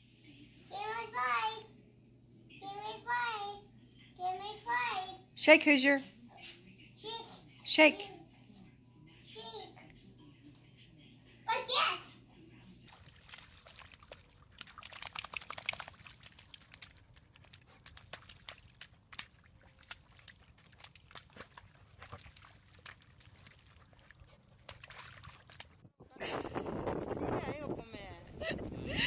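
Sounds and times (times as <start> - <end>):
dog splashing in muddy water: 12.9 - 25.8.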